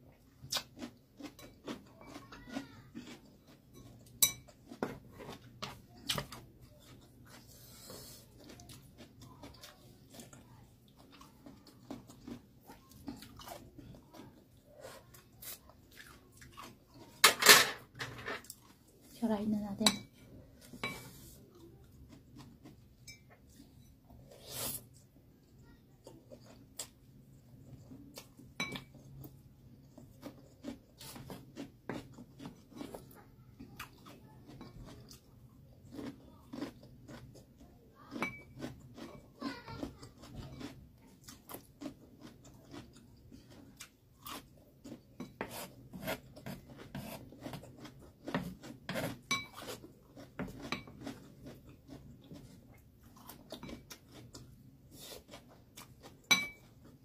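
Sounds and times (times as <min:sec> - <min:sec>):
chewing noodles: 0:00.1 - 0:17.2, 0:20.5 - 0:57.0
utensil clinking against dishes: 0:17.2 - 0:18.4, 0:56.3 - 0:56.7.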